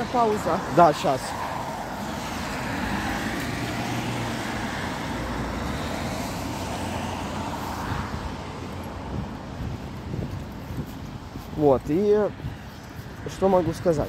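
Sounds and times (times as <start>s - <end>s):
vehicle engine rumble: 0.0s - 14.0s
tyre hiss on wet road: 0.6s - 8.3s.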